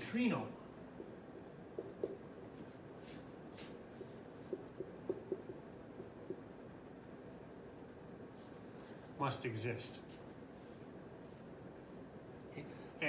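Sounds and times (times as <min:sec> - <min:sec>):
marker squeaking on whiteboard: 0:01.0 - 0:06.4.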